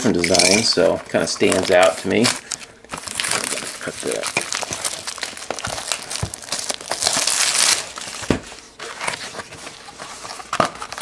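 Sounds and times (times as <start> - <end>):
cellophane crinkling and tearing: 0.1 - 11.0.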